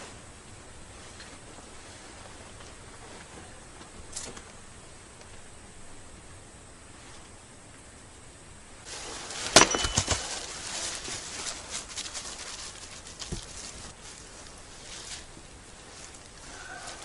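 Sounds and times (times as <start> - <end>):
wood crackling and rustling: 8.8 - 17.0
hatchet splitting wood: 9.6 - 10.3.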